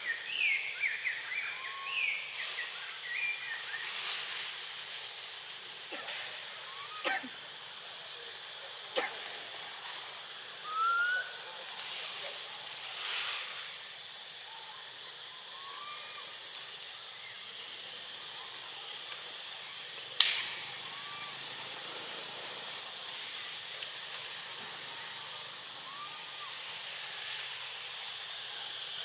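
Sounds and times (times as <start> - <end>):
steady hiss: 0.0 - 29.0
sharp click: 20.2 - 20.6.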